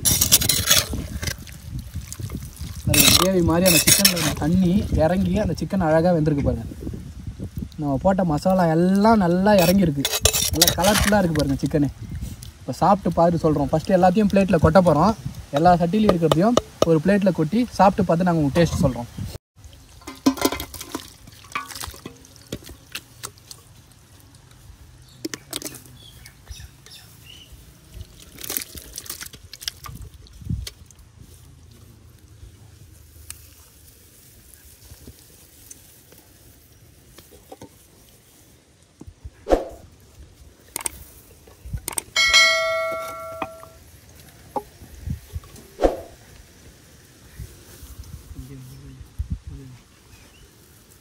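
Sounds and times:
cooking pots and utensils clattering: 0.0 - 1.4, 2.9 - 4.6, 9.5 - 11.4, 19.9 - 22.7, 41.9 - 43.8
wet gravy pouring and plopping: 0.0 - 5.4, 19.6 - 24.7, 27.8 - 31.1
clay pots knocking: 42.2 - 43.8
metal dish ringing: 42.2 - 43.8.

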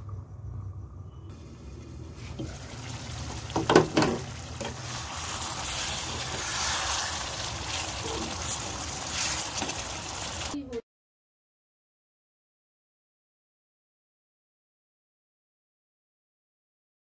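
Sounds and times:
curry bubbling in a pan: 1.3 - 10.6
utensils clattering against pan: 3.5 - 4.9.

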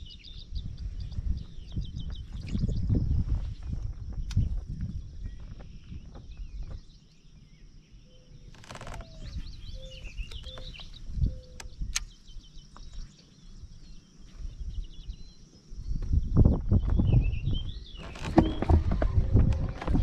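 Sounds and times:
small birds chirping: 0.0 - 20.0
brief rattle: 18.0 - 20.0.

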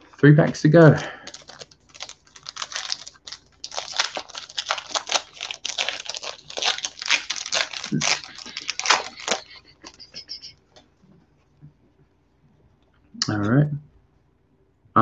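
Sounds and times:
foil wrapper crinkling: 0.9 - 10.3.

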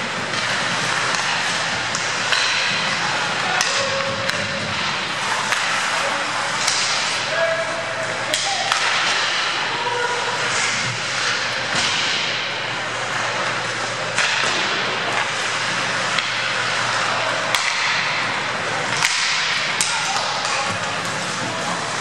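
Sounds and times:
hockey sticks clacking on puck: 0.0 - 22.0
skate blades scraping ice: 0.0 - 22.0.

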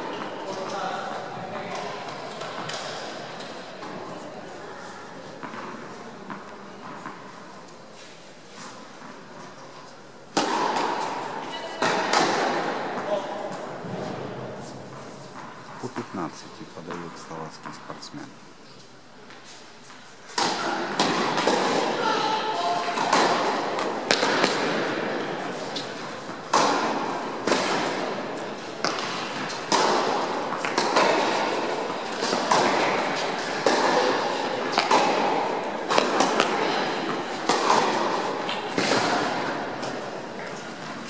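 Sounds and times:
racket striking tennis ball: 22.8 - 28.1, 28.8 - 41.0
tennis ball bouncing: 22.9 - 25.9, 28.8 - 41.0.

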